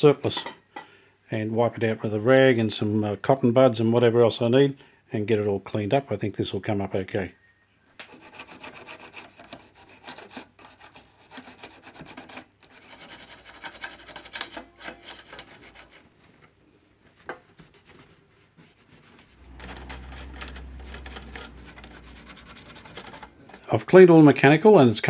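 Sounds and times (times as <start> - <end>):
toothbrush scrubbing metal parts: 8.1 - 16.1, 17.4 - 23.8
low steady hum: 19.3 - 24.4.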